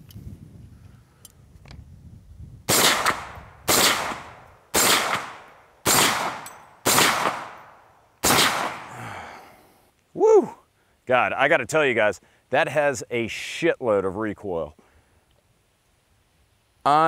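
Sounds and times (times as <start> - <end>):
rifle shots with echo: 2.7 - 9.0.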